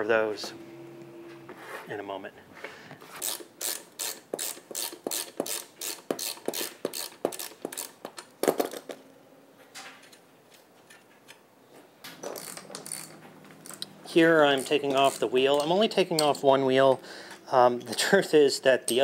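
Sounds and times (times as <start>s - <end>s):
ratchet wrench clicking: 3.2s - 8.2s, 12.2s - 16.4s.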